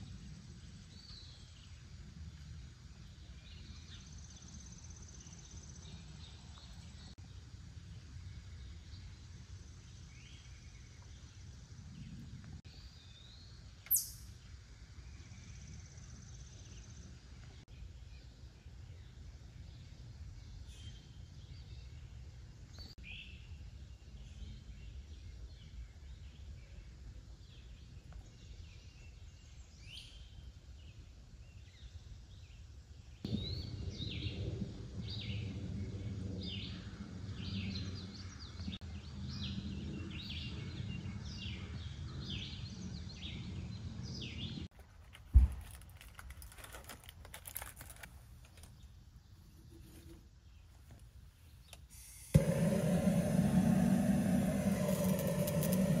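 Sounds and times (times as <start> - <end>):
birds singing and calling: 12.0 - 14.5, 36.4 - 44.7
steady low rumble: 33.3 - 44.3, 52.4 - 56.0
sharp thump: 45.3 - 45.6.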